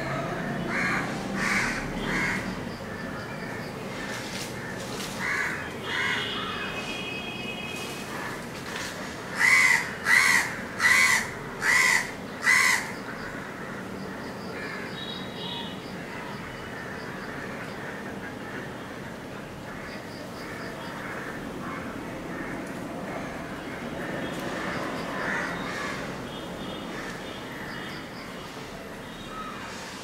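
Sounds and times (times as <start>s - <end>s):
steady background hiss: 0.0s - 30.0s
crow cawing: 0.6s - 2.6s, 3.4s - 6.7s, 9.3s - 13.9s, 19.7s - 26.1s.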